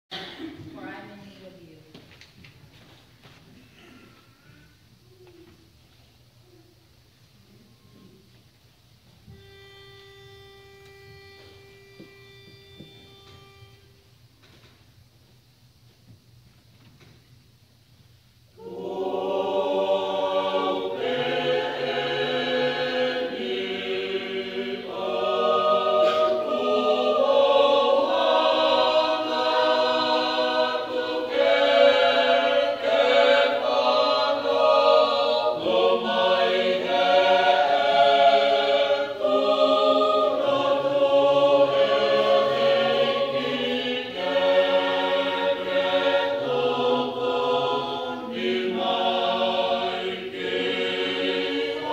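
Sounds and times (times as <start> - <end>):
choir singing a hymn in harmony: 18.6 - 51.9.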